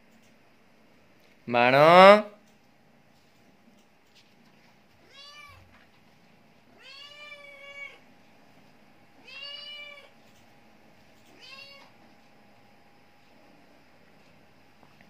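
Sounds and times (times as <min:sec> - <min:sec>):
cat meowing: 0:05.0 - 0:05.7, 0:06.8 - 0:08.0, 0:09.2 - 0:10.1, 0:11.3 - 0:12.0.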